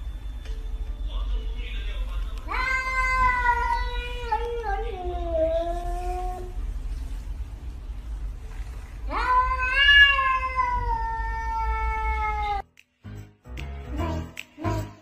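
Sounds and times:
cat meowing: 2.5 - 6.6, 9.1 - 12.7
background music with steady beat: 12.6 - 15.0.

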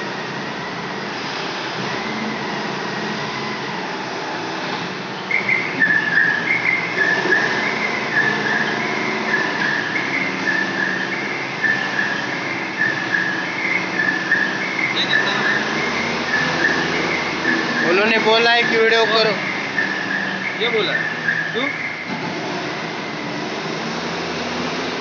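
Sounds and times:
forklift engine running: 0.0 - 25.0
two-tone warning beeper: 5.2 - 24.6.

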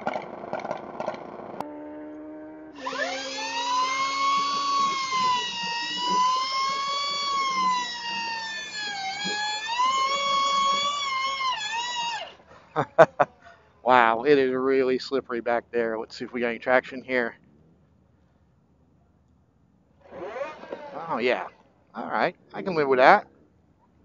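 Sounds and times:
electric motorcycle motor whining: 0.0 - 13.0, 20.0 - 21.6.

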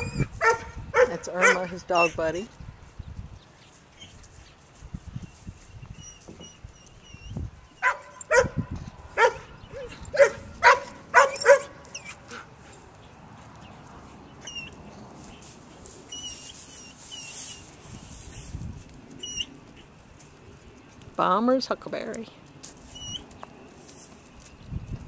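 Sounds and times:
dog barking: 0.4 - 1.7, 7.8 - 8.6, 9.2 - 12.4.

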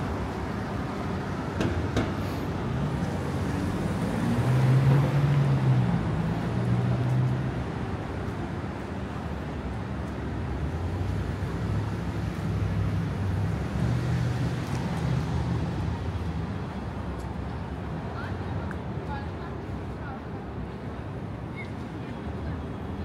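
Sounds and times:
passing vehicles: 0.0 - 23.0.

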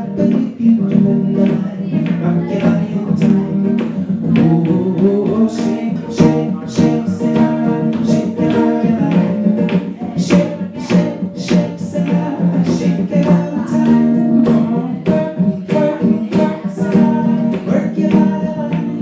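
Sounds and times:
acoustic guitar strumming: 0.0 - 19.0
man singing: 0.0 - 19.0.

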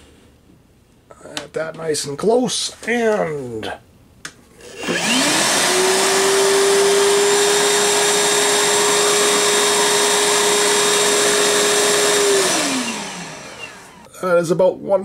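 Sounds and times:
vacuum motor whine and air rush: 4.6 - 14.1.

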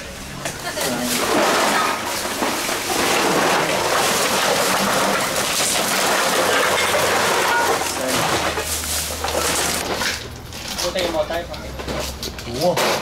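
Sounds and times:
plastic bottles and cans clattering: 0.7 - 13.0.

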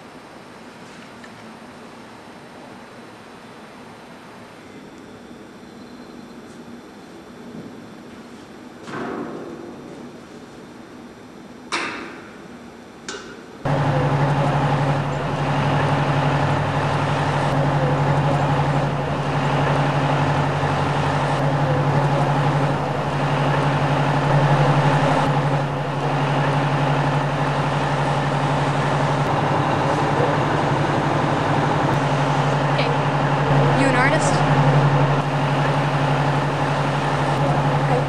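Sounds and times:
vehicle engine idling: 13.7 - 38.0.

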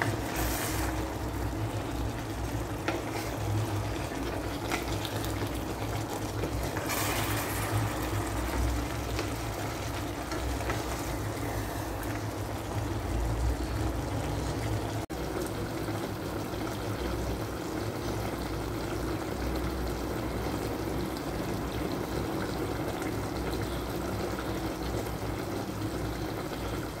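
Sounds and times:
wooden spatula stirring: 0.0 - 12.1
sauce bubbling in a pot: 0.0 - 27.0.

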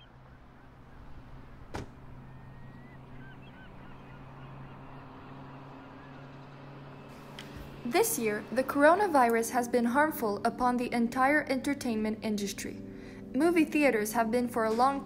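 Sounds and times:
gulls calling faintly: 0.0 - 8.6.

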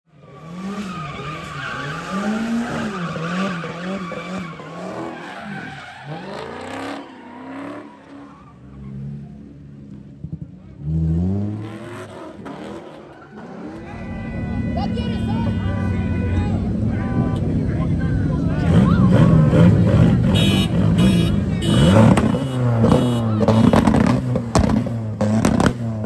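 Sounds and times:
car engines revving: 0.1 - 26.0
car engine revving sharply: 0.2 - 15.1, 15.8 - 26.0
tyre squeal: 0.3 - 9.1.

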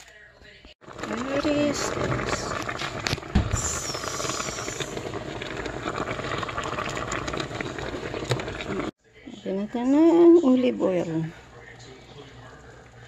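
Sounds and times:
boiling water and steam hissing: 0.8 - 9.0.

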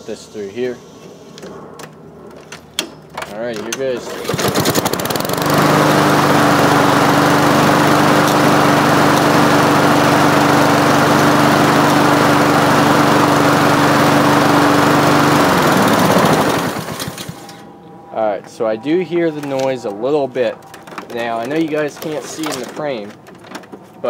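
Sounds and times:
lawnmower engine starting and running: 3.6 - 17.8, 19.2 - 24.0.

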